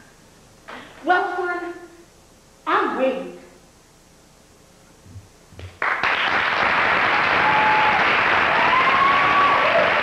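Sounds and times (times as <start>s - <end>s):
audience applause: 5.8s - 10.0s
high calls from audience: 7.2s - 10.0s.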